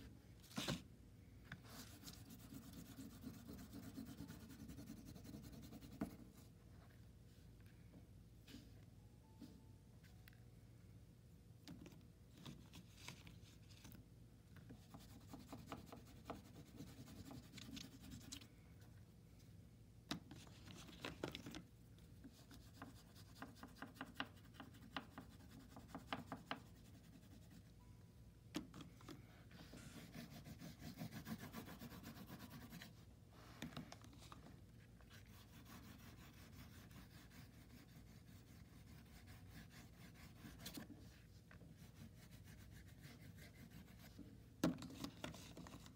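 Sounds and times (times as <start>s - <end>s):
oil pastel scratching on paper: 1.6s - 6.4s, 14.8s - 18.5s, 29.6s - 33.0s, 35.0s - 44.2s.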